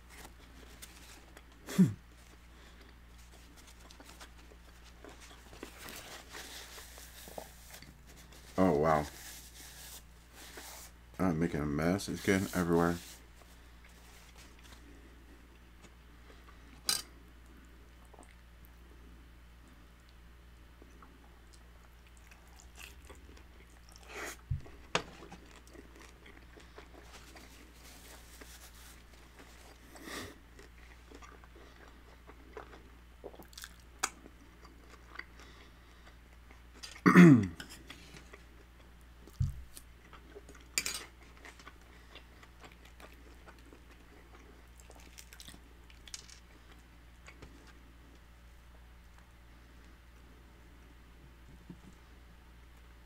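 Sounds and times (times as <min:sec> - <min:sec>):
crunchy chewing: 0:21.5 - 0:37.0, 0:37.6 - 0:47.8.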